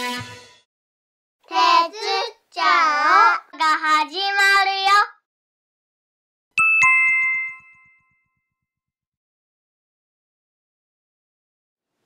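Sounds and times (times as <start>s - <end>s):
child singing jingle: 1.5s - 3.3s
two-note chime: 6.6s - 8.4s.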